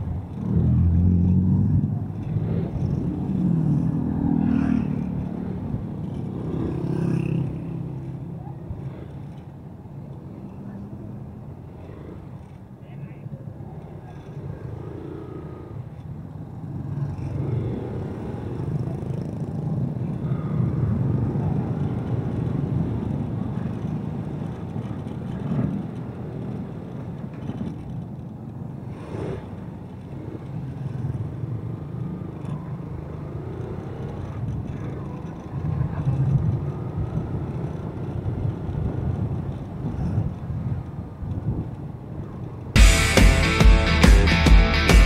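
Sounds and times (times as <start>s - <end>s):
road and wind noise: 0.0s - 45.0s
motorcycle engine running: 42.8s - 45.0s.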